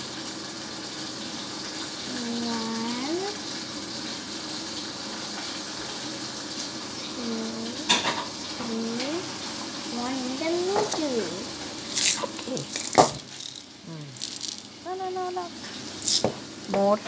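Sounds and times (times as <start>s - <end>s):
steady background hiss: 6.8s - 17.0s
person humming: 13.8s - 15.5s.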